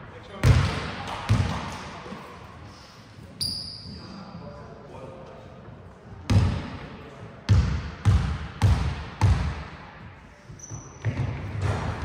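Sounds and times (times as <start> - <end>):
basketball bouncing in a hall: 0.2 - 2.1, 6.2 - 12.0.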